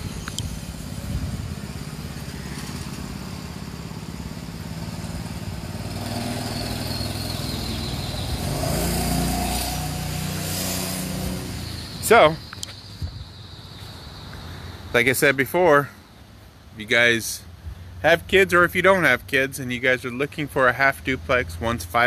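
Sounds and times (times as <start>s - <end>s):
go-kart engine revving: 0.0s - 12.5s.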